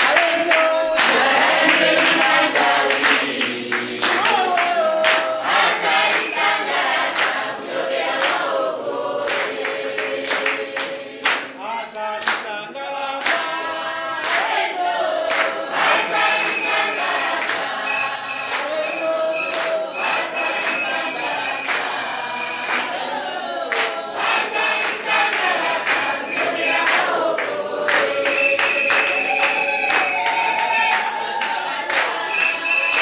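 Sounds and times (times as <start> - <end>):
group singing without instruments: 0.0 - 33.0
people clapping in time: 0.0 - 33.0.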